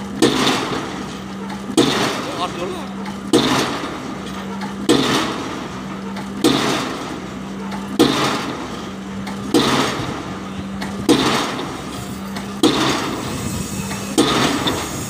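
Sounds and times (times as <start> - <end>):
pile hammer blows: 0.0 - 15.0.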